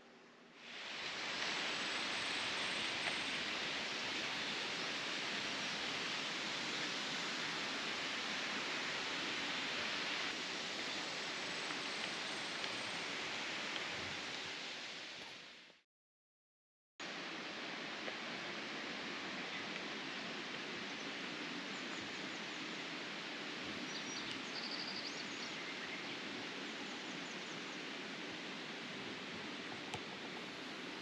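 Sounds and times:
water rushing: 0.6 - 15.6.

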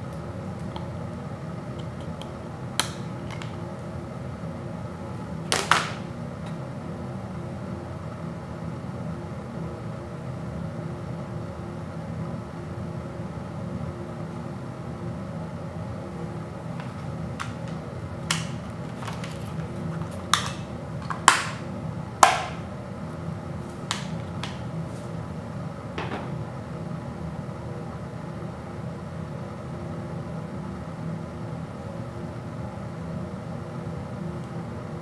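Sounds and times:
steady low hum: 0.0 - 35.0
plastic disc case clicks: 16.8 - 21.6.

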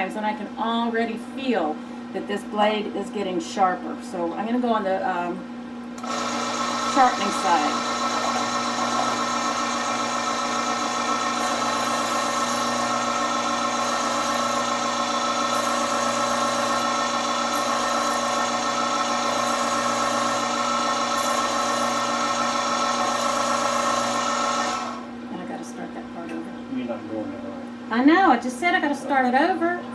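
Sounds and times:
knife sharpener motor humming: 6.0 - 25.1.

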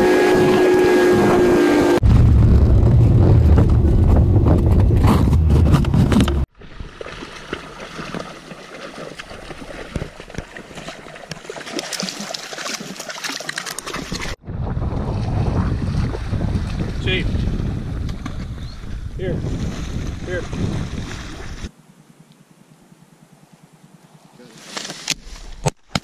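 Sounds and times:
wind rumble on camera: 0.0 - 6.5, 14.1 - 21.7
dog splashing through water: 6.6 - 14.4
light wind: 14.1 - 25.7.

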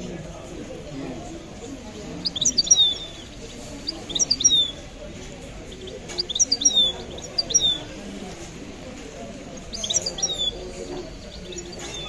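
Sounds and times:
songbird twittering: 1.7 - 8.2, 9.4 - 12.0.

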